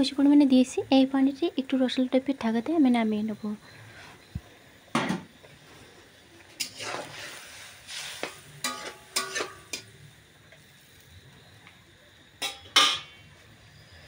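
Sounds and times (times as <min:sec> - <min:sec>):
metal spatula scraping a pan: 0:06.6 - 0:09.9.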